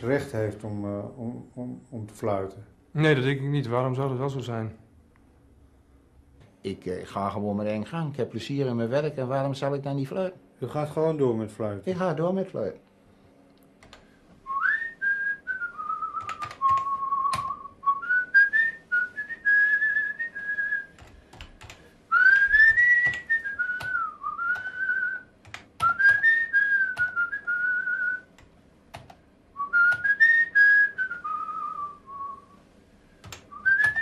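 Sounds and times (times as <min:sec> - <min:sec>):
computer keyboard keys clicking: 0:13.8 - 0:14.0, 0:16.2 - 0:17.5, 0:21.0 - 0:21.8, 0:22.6 - 0:24.6, 0:25.4 - 0:26.2, 0:27.0 - 0:27.2, 0:28.4 - 0:29.2, 0:33.2 - 0:34.0
man whistling a tune: 0:14.5 - 0:20.9, 0:22.1 - 0:28.3, 0:29.6 - 0:32.6, 0:33.5 - 0:34.0.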